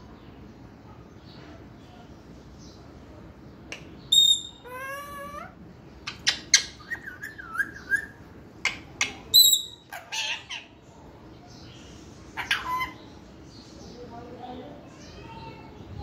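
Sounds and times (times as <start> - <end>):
parrot whistling: 4.1 - 5.1
parrot squawks: 4.1 - 5.5, 9.3 - 10.7, 12.4 - 13.0.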